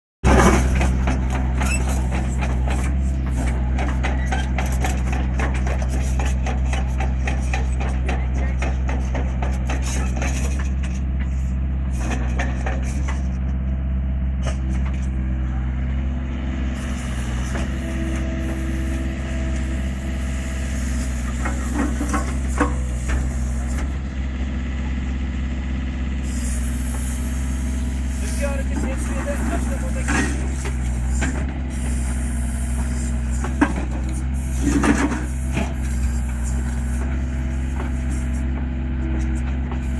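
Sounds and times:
diesel engine running: 0.2 - 39.9
excavator clanking and rattling: 0.2 - 39.9
hydraulic whine: 14.4 - 24.1, 26.2 - 39.9.

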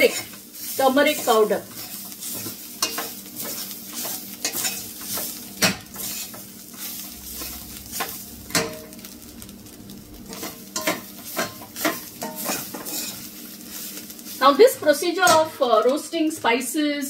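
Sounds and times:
light sizzle: 0.0 - 17.0
metal spoon scraping pot: 1.7 - 5.3, 10.4 - 13.2.

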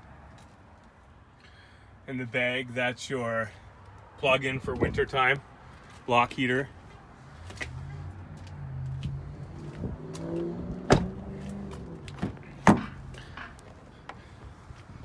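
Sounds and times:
car door shutting thud: 10.8 - 11.2.

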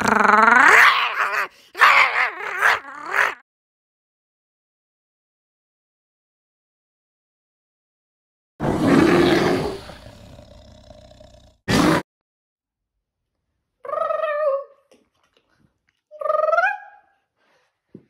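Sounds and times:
bear-like roar: 8.6 - 12.0.

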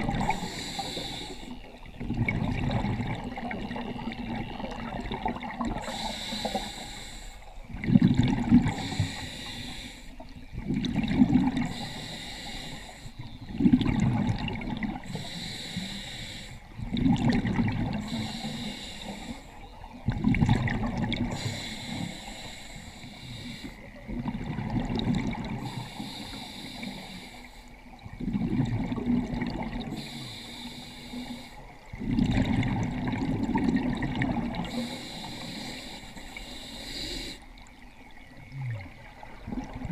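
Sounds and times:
rush of exhaled bubbles: 0.0 - 1.2, 1.9 - 6.2, 7.7 - 9.2, 10.6 - 11.9, 13.4 - 15.2, 16.8 - 18.4, 20.0 - 22.0, 24.0 - 25.9, 28.1 - 30.1, 31.9 - 34.9, 38.5 - 39.9
hissing regulator inhale: 0.2 - 1.7, 5.8 - 7.6, 8.6 - 10.2, 11.6 - 13.3, 15.1 - 16.7, 18.0 - 19.6, 21.3 - 23.9, 25.6 - 27.8, 29.9 - 31.7, 34.6 - 37.5.

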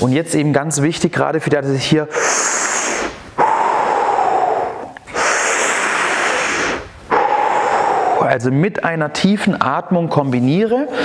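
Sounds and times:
man breathing deeply: 2.1 - 8.4.

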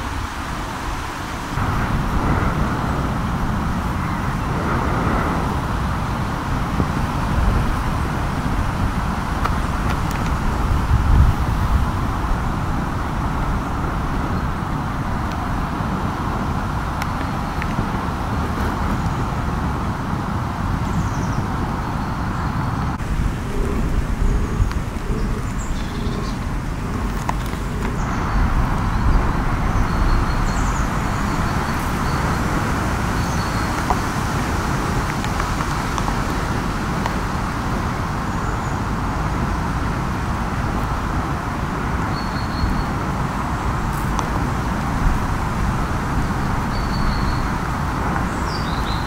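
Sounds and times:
rain hiss: 0.0 - 49.0
low rumble: 1.6 - 20.5, 22.8 - 33.8
bird chirps: 24.2 - 26.4.

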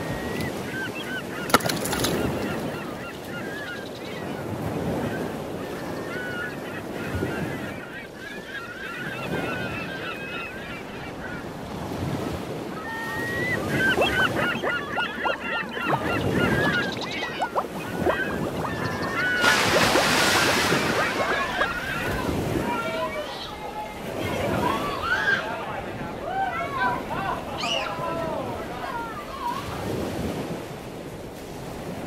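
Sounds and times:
flock of birds calling: 0.0 - 30.0
waves washing: 0.0 - 32.0
wind: 0.0 - 32.0
surf rushing: 11.1 - 30.8.

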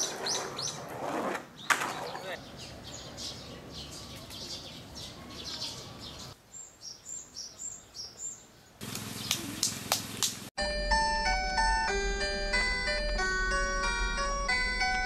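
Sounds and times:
outdoor noise: 0.0 - 15.0
small birds chirping: 1.5 - 10.4.

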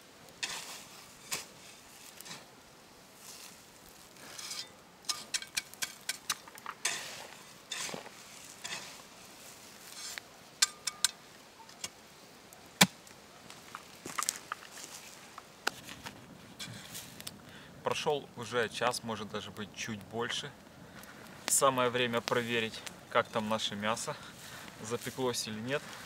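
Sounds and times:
soil landing in hissing rushes: 0.0 - 10.7
shovel scooping earth: 0.4 - 2.5, 3.2 - 10.9.

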